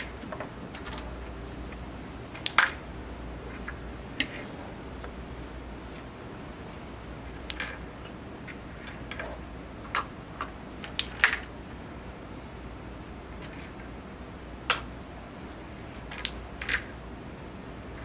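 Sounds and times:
wooden discs clacking: 0:00.0 - 0:05.2, 0:07.2 - 0:11.8, 0:14.6 - 0:17.0.

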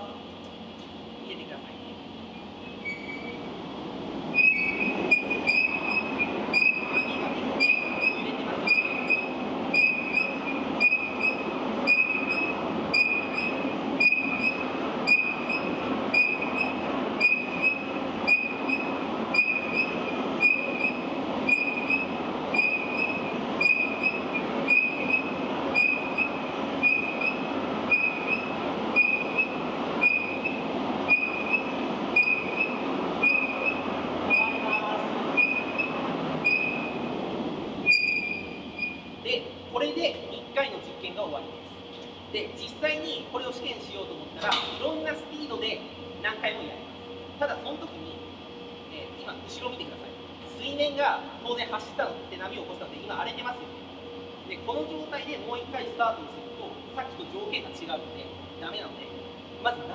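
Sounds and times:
carriage rumbling along rails: 0:02.3 - 0:39.2.

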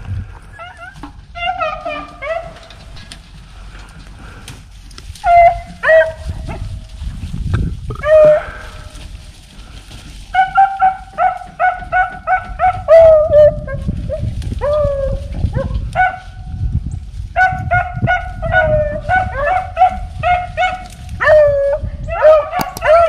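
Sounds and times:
dog barking: 0:10.3 - 0:13.1, 0:15.6 - 0:16.3, 0:17.4 - 0:21.5, 0:22.1 - 0:23.0.

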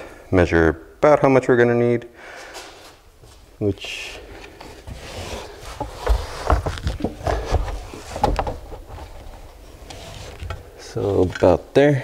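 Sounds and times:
wire rustling and scraping: 0:02.6 - 0:11.5.

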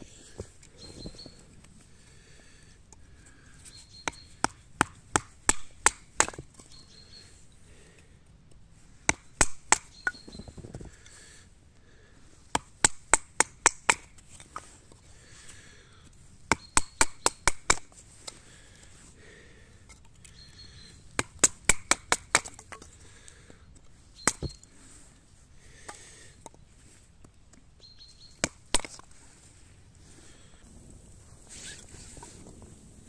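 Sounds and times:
blade chopping wood: 0:04.0 - 0:06.7, 0:09.0 - 0:10.4, 0:12.5 - 0:14.6, 0:16.4 - 0:18.0, 0:21.2 - 0:22.9, 0:24.2 - 0:24.6, 0:28.4 - 0:29.1.

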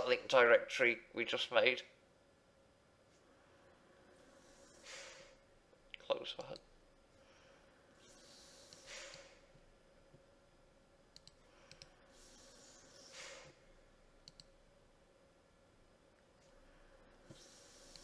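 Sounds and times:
faint steady hum: 0:00.0 - 0:18.0
computer mouse clicks: 0:08.0 - 0:09.4, 0:11.1 - 0:13.5, 0:14.2 - 0:14.6, 0:17.3 - 0:18.0.

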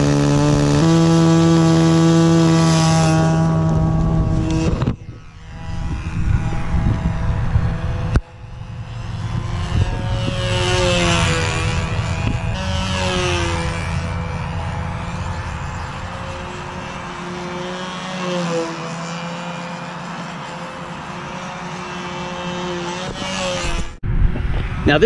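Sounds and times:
model airplane engine running: 0:00.0 - 0:25.0
wind noise: 0:03.3 - 0:18.2, 0:22.9 - 0:25.0.

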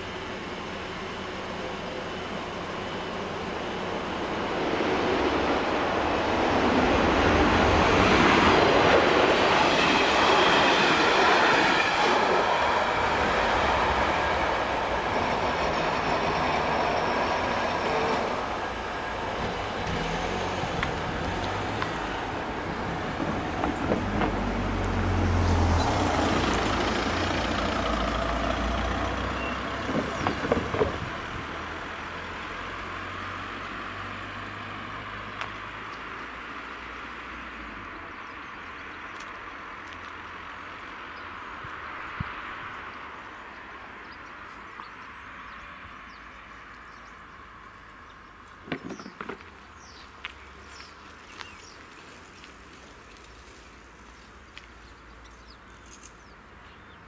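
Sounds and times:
passenger train running past: 0:00.0 - 0:34.0
car driving over crossing: 0:12.5 - 0:35.9.

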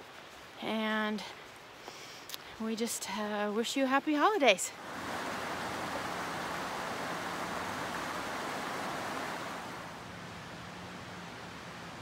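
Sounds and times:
creek water rushing: 0:04.6 - 0:12.0.

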